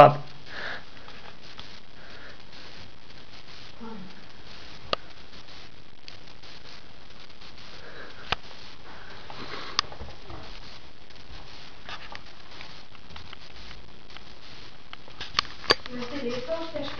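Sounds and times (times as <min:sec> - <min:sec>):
steady hiss: 0:00.0 - 0:16.9
kittens scuffling and sniffing: 0:06.3 - 0:16.9.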